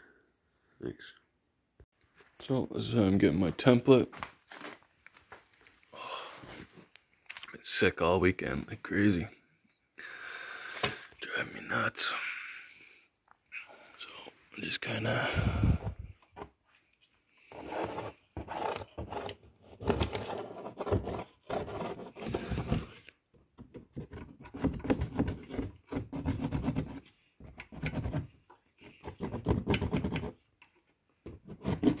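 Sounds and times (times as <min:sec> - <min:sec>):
drawing tool scratching cardboard: 0:17.5 - 0:22.9, 0:24.0 - 0:30.4, 0:31.3 - 0:32.0.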